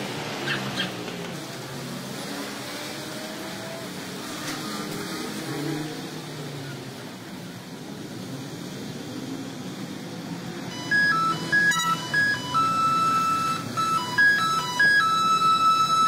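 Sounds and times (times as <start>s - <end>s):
electronic beeping jingle: 10.7s - 16.0s.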